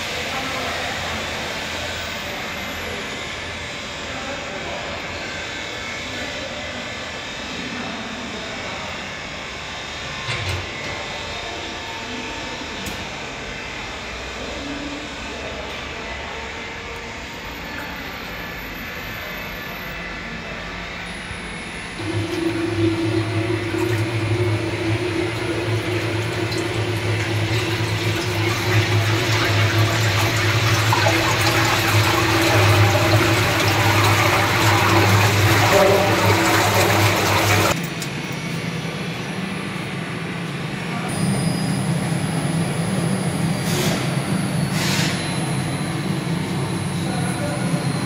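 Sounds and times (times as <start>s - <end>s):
machine motor hum: 20.8s - 39.8s
liquid churning and splashing: 22.0s - 37.8s.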